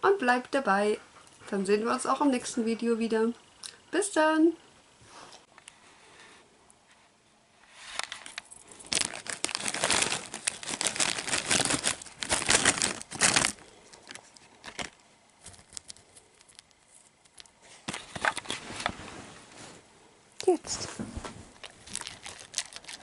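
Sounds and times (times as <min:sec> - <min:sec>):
plastic bag crinkling: 0:08.0 - 0:19.0, 0:21.5 - 0:23.0.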